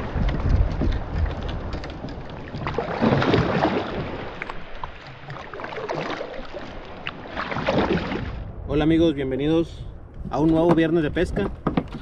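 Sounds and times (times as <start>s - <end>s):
water splashing and sloshing: 0.0s - 8.9s, 10.0s - 12.0s
small knocks on kayak: 10.4s - 12.0s.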